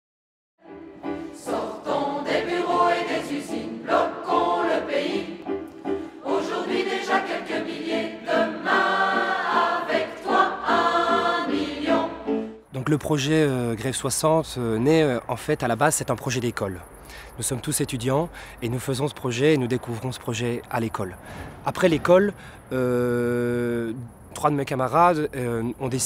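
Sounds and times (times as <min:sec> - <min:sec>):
choir singing: 0:00.6 - 0:12.6.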